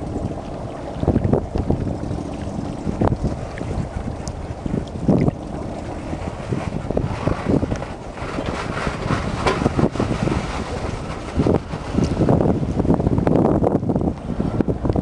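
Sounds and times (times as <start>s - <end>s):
water splashing and lapping: 0.0s - 15.0s
wind buffeting microphone: 0.0s - 15.0s.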